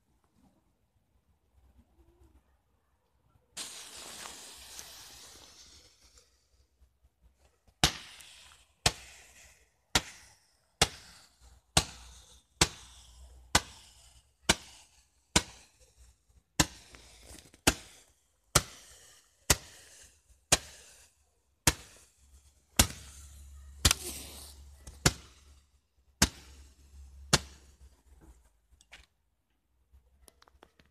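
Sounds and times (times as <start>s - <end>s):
firework bangs with echo: 7.8s - 11.2s.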